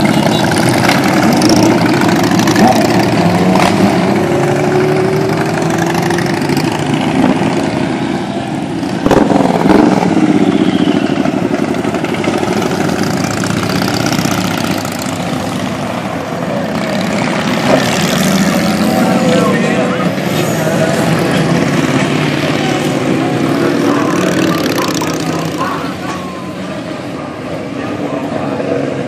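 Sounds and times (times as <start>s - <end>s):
motorcycles riding past: 0.0s - 29.0s.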